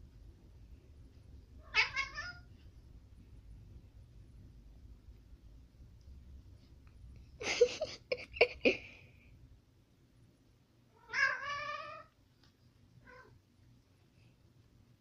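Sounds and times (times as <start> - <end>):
cats fighting and yowling: 1.6 - 2.5, 10.9 - 12.2, 13.0 - 13.4.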